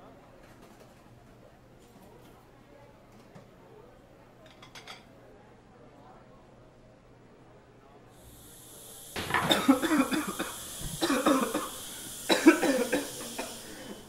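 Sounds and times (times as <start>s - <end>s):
steady high hiss: 8.2s - 14.0s
man coughing hard: 9.4s - 13.8s.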